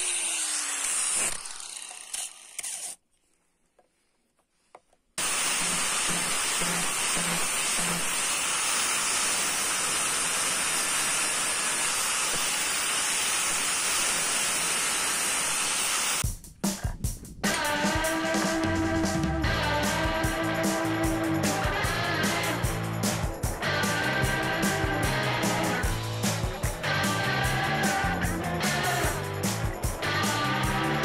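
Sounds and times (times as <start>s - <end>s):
angle grinder grinding steel: 0.0s - 3.0s, 5.2s - 16.2s.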